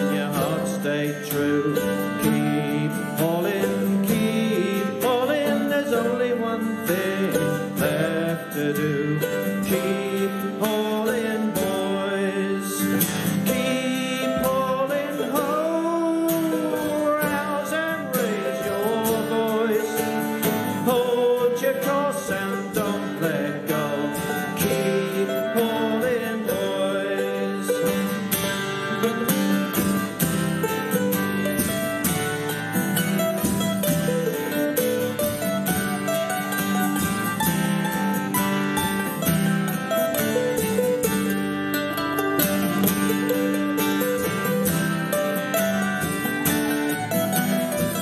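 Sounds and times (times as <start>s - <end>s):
plucked strings strumming: 0.0s - 48.0s
wind instrument melody: 23.3s - 48.0s.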